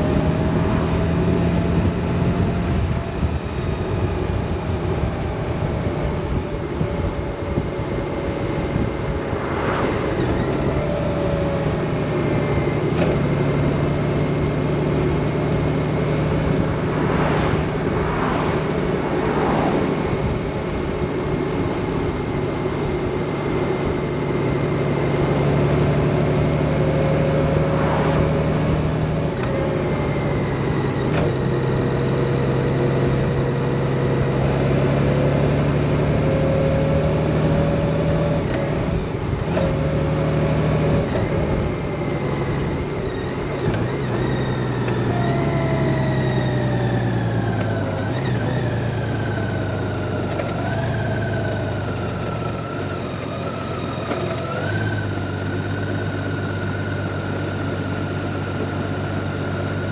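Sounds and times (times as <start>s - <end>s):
wind noise: 0.0s - 13.1s
motorcycle engine drone: 0.0s - 59.9s.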